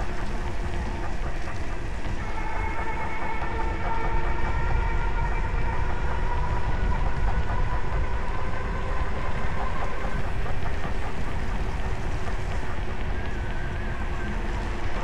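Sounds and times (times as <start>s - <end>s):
wind buffeting microphone: 3.5s - 15.0s.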